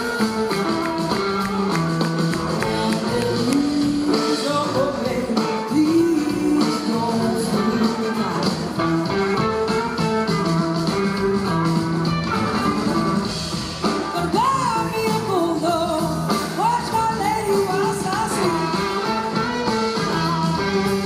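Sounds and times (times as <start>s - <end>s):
blues-rock band playing: 0.0s - 21.0s.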